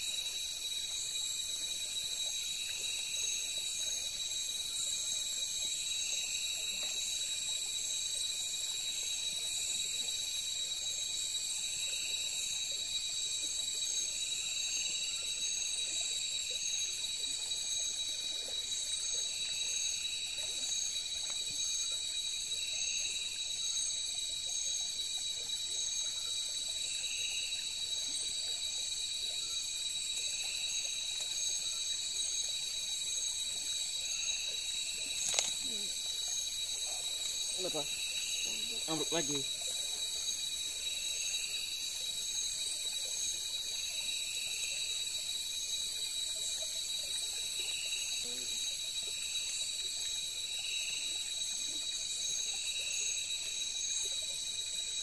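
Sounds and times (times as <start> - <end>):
crickets trilling: 0.0 - 55.0
low pulsing insect call: 0.0 - 55.0.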